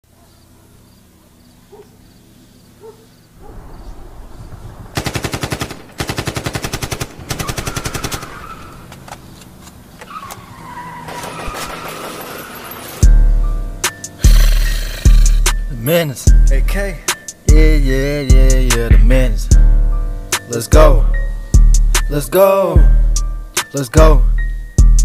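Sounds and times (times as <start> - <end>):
low rumble: 3.4 - 6.0
automatic gunfire: 4.9 - 8.8
tire squealing: 7.3 - 15.7.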